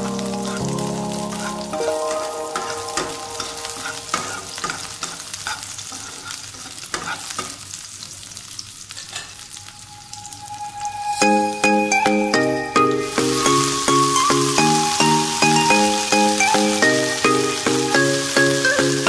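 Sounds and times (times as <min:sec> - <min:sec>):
food sizzling in oil: 0:00.0 - 0:19.0
metal spatula scraping a pan: 0:03.7 - 0:07.6.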